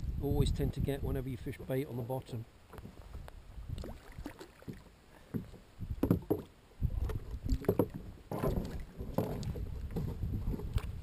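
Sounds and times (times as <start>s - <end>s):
water lapping against kayak hull: 2.6s - 11.0s.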